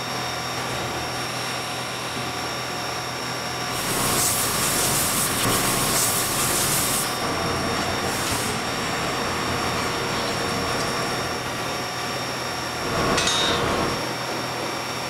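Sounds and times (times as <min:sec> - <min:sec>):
machine hum: 0:00.0 - 0:15.0
spray gun hissing: 0:03.7 - 0:09.5.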